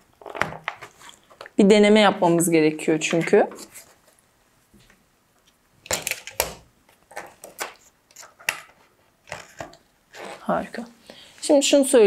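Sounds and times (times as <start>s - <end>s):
knocks and clicks of handled parts: 5.8s - 7.8s.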